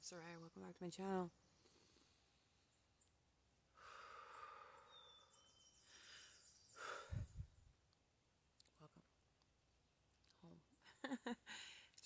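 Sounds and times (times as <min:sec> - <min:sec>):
person breathing: 0:03.7 - 0:07.6, 0:11.5 - 0:12.0.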